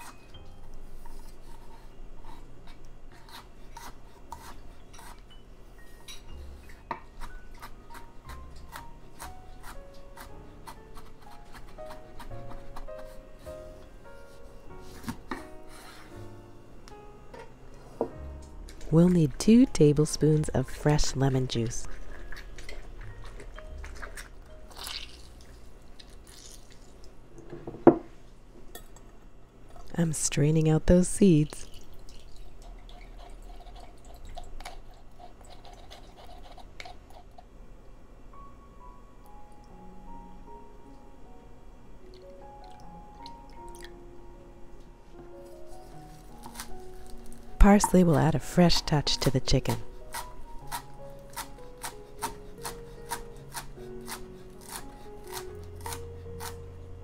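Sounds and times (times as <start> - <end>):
juice dripping: 22.3 - 27.2, 31.5 - 35.4, 42.0 - 44.0
knife chopping on wooden board: 50.1 - 56.6.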